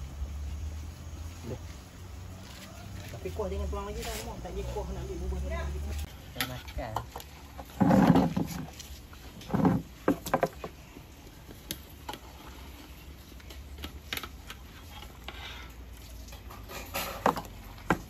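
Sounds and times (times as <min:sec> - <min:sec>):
dishes and utensils clinking: 0:16.3 - 0:17.7.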